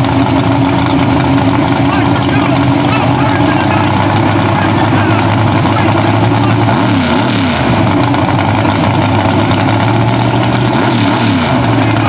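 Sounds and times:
truck engine idling loudly: 0.0s - 12.0s.

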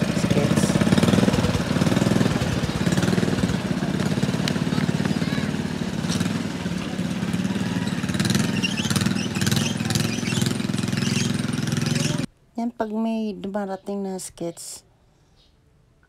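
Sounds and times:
small engine running steadily: 0.0s - 12.3s.

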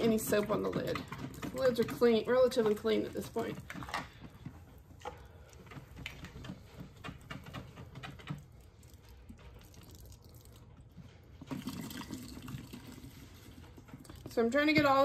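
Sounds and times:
water pouring into sink drain: 8.5s - 14.3s.

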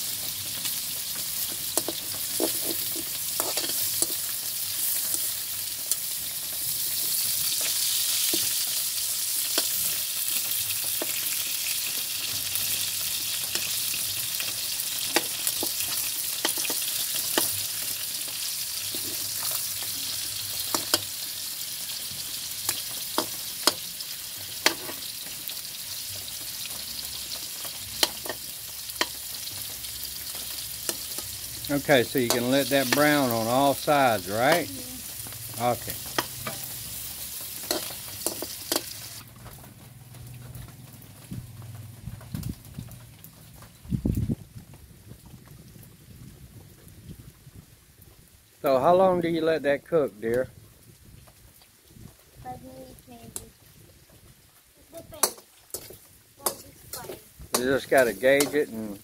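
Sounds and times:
meat sizzling in a wok: 0.0s - 44.4s, 48.4s - 59.0s
metal spatula scraping pan: 1.8s - 4.3s, 18.9s - 19.9s, 35.8s - 39.0s, 55.2s - 58.8s.

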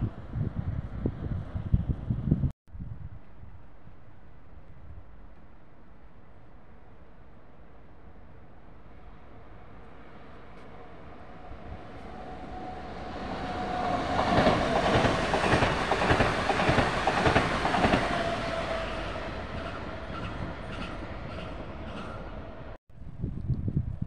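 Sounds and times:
train whine: 3.8s - 22.8s
train wheels clattering over rail joints: 14.1s - 18.4s.

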